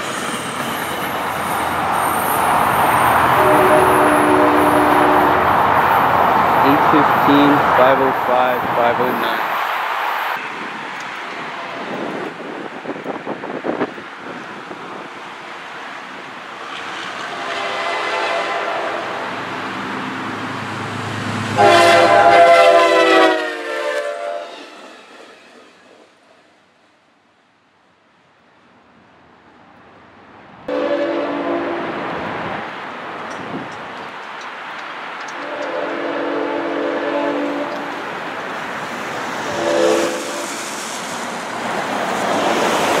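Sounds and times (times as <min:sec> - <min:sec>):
passing train noise: 0:00.0 - 0:43.0
locomotive air horn chord: 0:03.3 - 0:05.5, 0:17.4 - 0:19.2, 0:21.6 - 0:24.6, 0:30.7 - 0:31.9, 0:35.4 - 0:37.8, 0:39.5 - 0:40.5.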